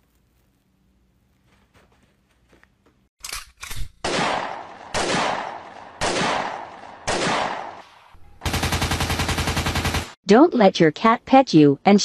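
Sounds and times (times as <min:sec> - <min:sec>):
loud sharp bangs: 0:04.0 - 0:10.2.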